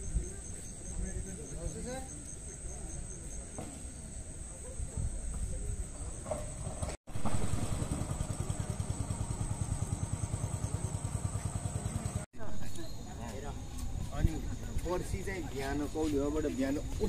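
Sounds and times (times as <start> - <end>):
low engine-like throbbing: 7.1 - 12.3.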